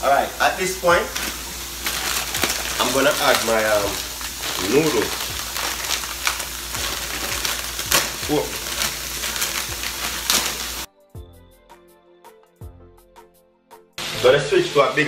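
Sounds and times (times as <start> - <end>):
stir-fry sizzling in a pan: 0.0 - 10.9, 14.0 - 15.0
background music with a beat: 10.9 - 14.0.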